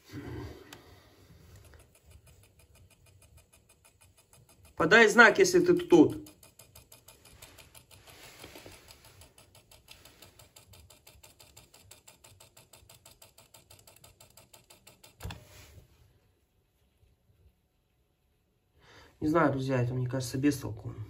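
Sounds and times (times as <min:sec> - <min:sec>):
tape mechanism ticking: 0:00.6 - 0:15.4.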